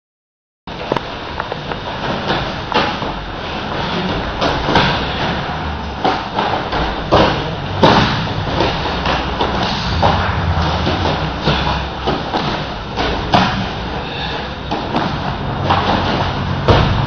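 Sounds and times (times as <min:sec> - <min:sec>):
bodies thudding on a mat: 0:14.7 - 0:17.0.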